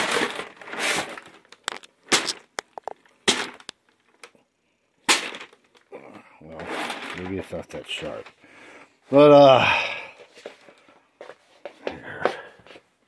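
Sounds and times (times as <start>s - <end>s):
paper rustling and tearing: 0.0s - 2.5s.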